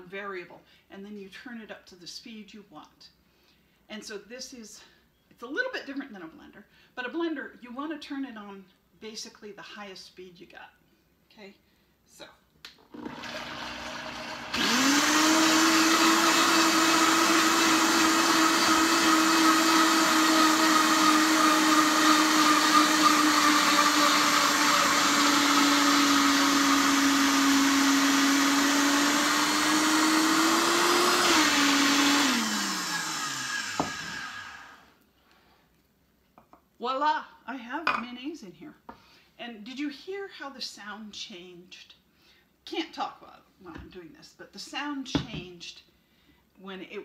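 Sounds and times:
blender motor whining: 0:12.9 - 0:35.0.

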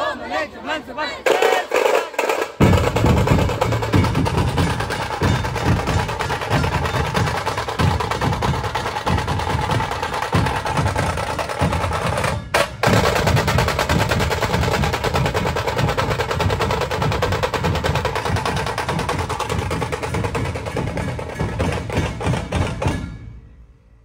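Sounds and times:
heavy drum beats: 0:01.2 - 0:23.3
sharp drum rolls with sticks: 0:01.2 - 0:23.4.

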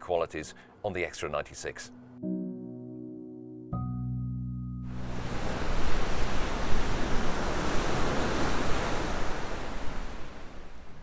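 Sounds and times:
sea water rushing: 0:04.9 - 0:11.0.

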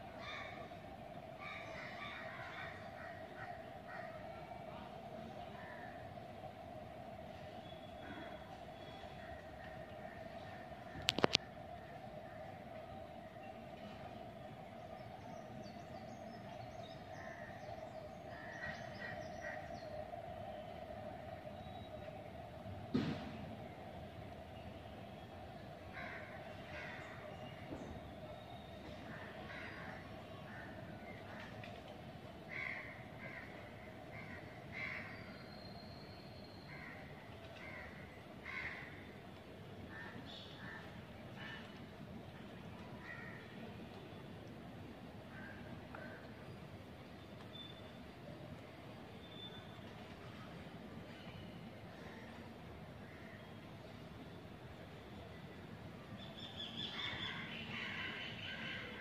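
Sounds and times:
low hum: 0:00.0 - 0:32.5
crows cawing: 0:01.4 - 0:04.3, 0:18.3 - 0:19.8, 0:25.9 - 0:27.3, 0:29.2 - 0:30.8, 0:32.5 - 0:35.3, 0:36.7 - 0:39.1, 0:43.0 - 0:43.4.

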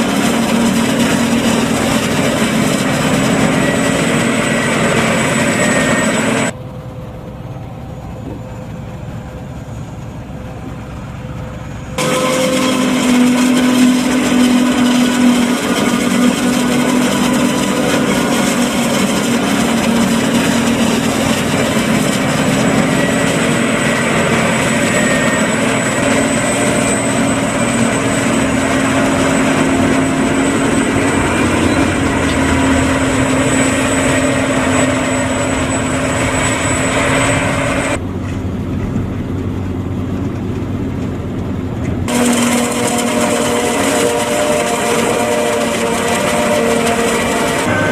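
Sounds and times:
forage harvester running: 0:00.0 - 0:47.9.

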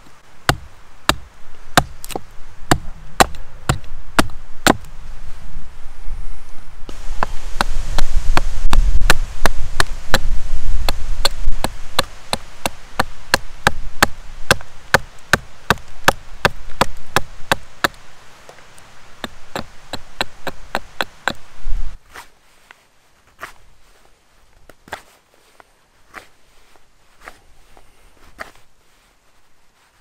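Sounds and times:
hatchet chopping wood: 0:00.4 - 0:04.9, 0:07.2 - 0:18.0, 0:19.2 - 0:21.4.

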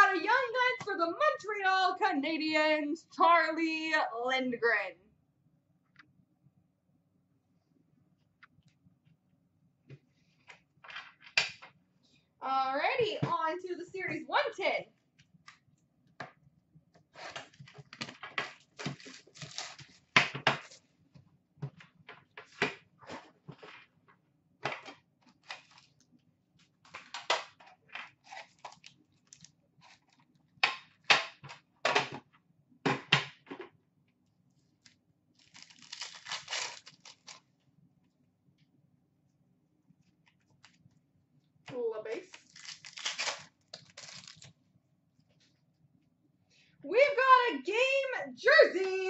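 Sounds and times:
foil wrappers crinkling: 0:17.2 - 0:20.9, 0:25.3 - 0:26.0, 0:28.2 - 0:30.2, 0:34.8 - 0:37.5, 0:42.2 - 0:44.5.

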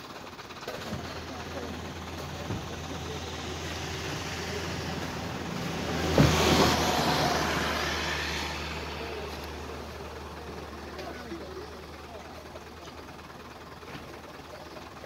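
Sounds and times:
low engine hum: 0:00.0 - 0:15.0
truck driving past on gravel: 0:01.1 - 0:12.2.

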